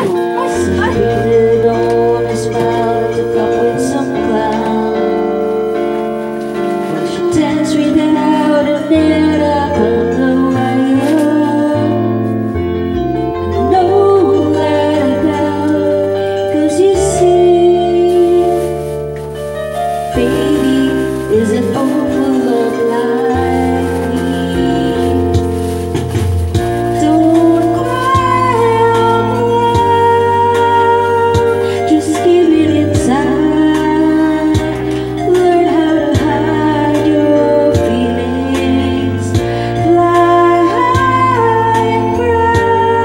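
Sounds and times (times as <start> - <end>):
backing music: 0.0 - 43.0
woman singing into a microphone: 0.0 - 43.0.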